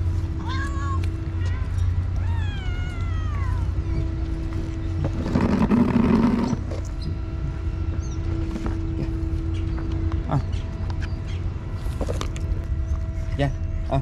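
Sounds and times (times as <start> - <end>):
steady low rumble: 0.0 - 14.0
cat meowing: 2.2 - 3.7
rough noisy sound: 3.1 - 14.0.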